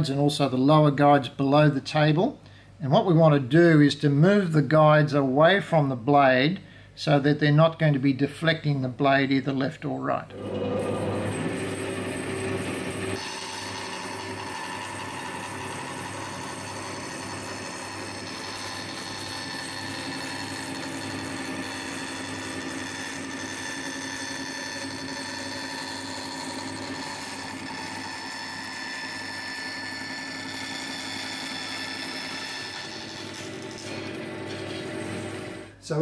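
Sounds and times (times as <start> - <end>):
bandsaw cutting plywood: 10.4 - 35.7.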